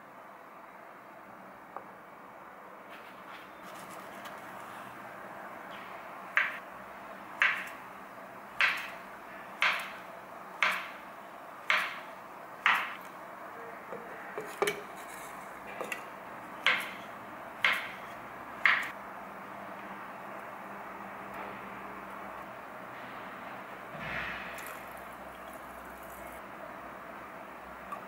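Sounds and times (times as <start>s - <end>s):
knife chopping on wooden board: 7.4s - 7.7s, 8.6s - 8.9s, 9.6s - 10.0s, 10.6s - 10.9s, 11.7s - 12.0s, 12.6s - 13.0s, 16.6s - 17.0s, 17.6s - 18.0s, 18.6s - 18.9s.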